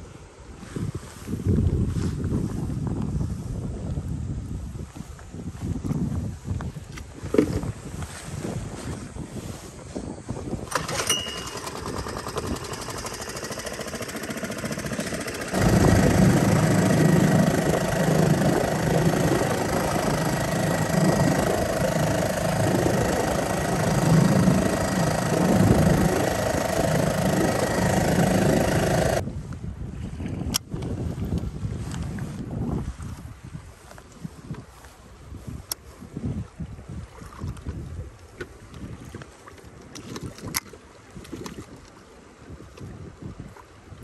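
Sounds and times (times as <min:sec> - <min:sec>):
water noise: 0:00.0 - 0:44.0
wind: 0:00.0 - 0:44.0
outboard motor running: 0:10.4 - 0:29.3.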